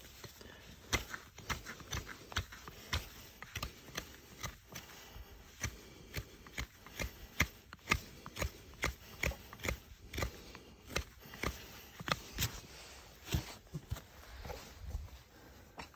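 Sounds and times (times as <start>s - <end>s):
hand tool tapping a horse's hoof: 0.0s - 12.5s.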